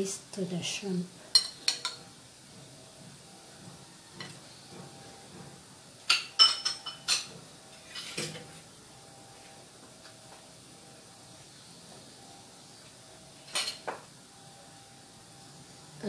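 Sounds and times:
metal spoon clinking glass bowl: 0:01.3 - 0:02.0, 0:06.1 - 0:07.3.

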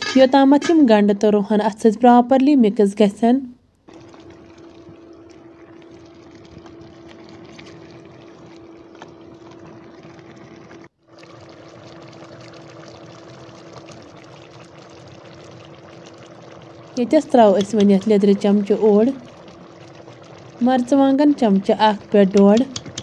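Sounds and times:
cooktop low hum: 0:00.0 - 0:23.0
curry bubbling in a pot: 0:03.9 - 0:23.0.

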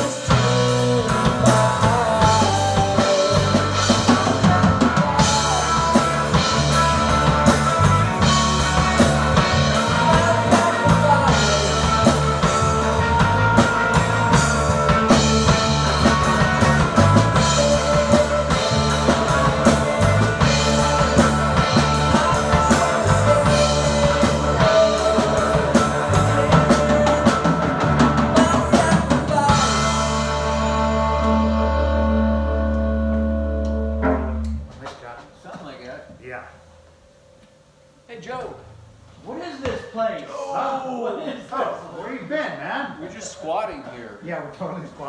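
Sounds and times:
distorted electric guitar: 0:00.0 - 0:35.4
drum kit: 0:00.0 - 0:36.6.

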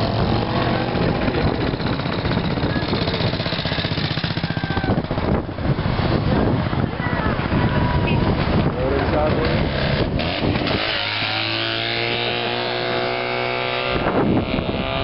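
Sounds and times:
motorcycle engine passing: 0:00.0 - 0:05.4, 0:09.2 - 0:15.0.

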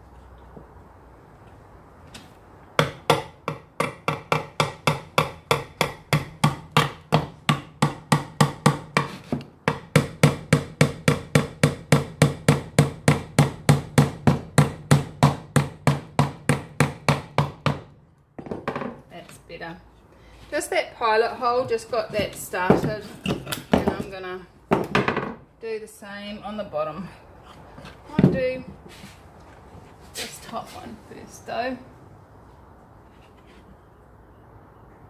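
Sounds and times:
hammer striking nail into wood: 0:02.8 - 0:18.9.

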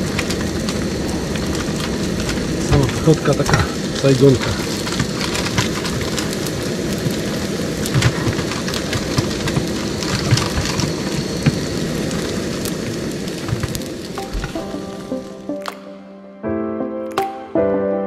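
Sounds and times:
food sizzling in hot oil: 0:00.0 - 0:15.5.

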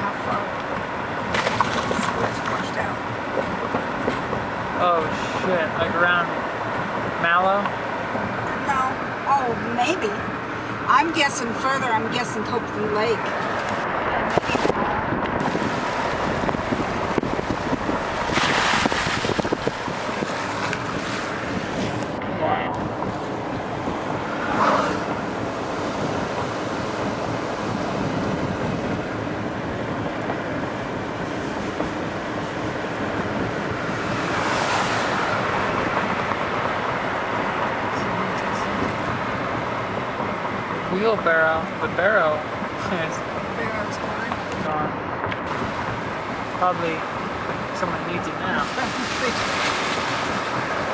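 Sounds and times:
floodwater rushing: 0:00.0 - 0:03.3, 0:08.0 - 0:44.8, 0:45.4 - 0:50.9
passing car: 0:00.0 - 0:50.9
tyre and road noise: 0:00.0 - 0:50.9
wind on microphone: 0:12.0 - 0:50.9.

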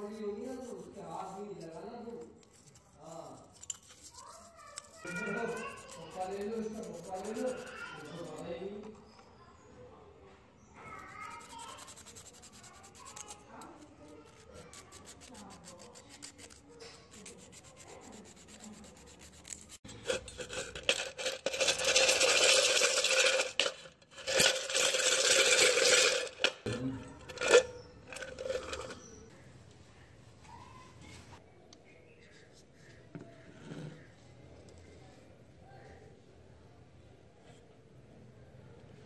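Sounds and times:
scrubbing metal parts: 0:02.4 - 0:08.4, 0:11.4 - 0:29.3.

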